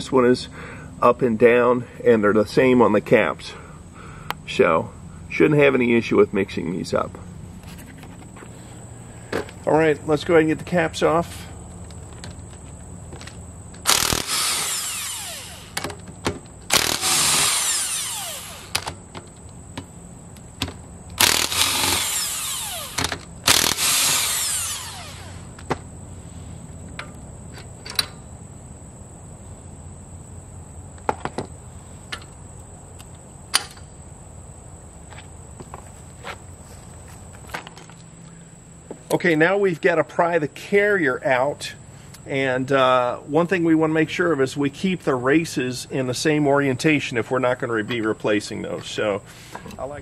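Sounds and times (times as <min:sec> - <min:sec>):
power tool spinning bolts: 0:13.8 - 0:19.1, 0:21.2 - 0:25.6.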